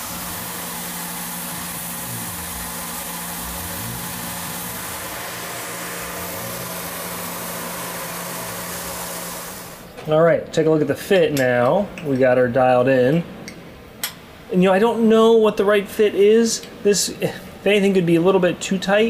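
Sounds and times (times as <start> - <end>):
steady hiss: 0.0 - 9.8
mill spindle humming: 0.0 - 10.0.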